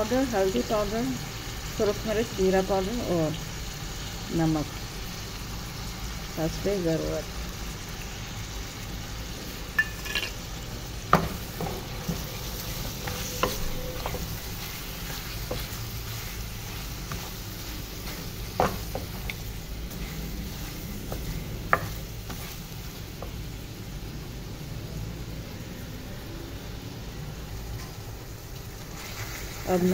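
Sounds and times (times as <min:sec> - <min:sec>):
meat sizzling in a pot: 0:00.0 - 0:29.9.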